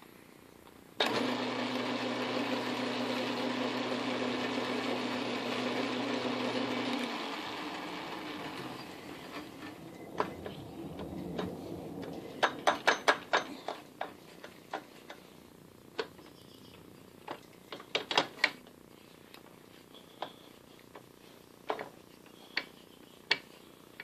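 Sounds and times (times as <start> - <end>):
low rumble: 9.8 - 12.4.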